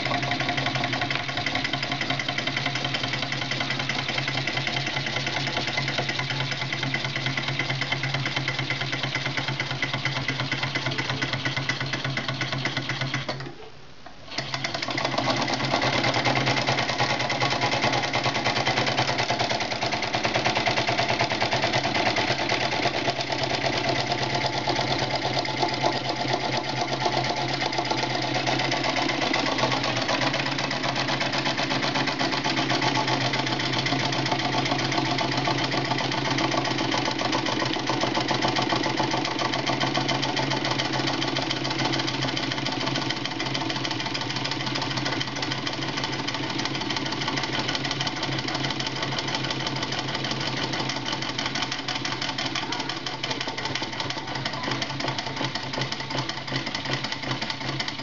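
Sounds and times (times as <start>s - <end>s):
engine pistons clattering: 18.1s - 58.0s.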